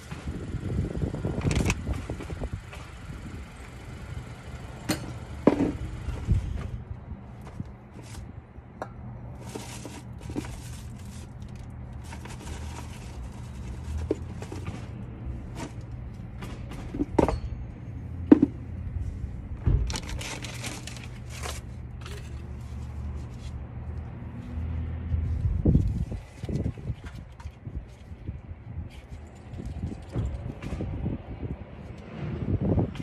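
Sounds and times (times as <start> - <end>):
tools clicking and scraping: 20.0 - 23.4.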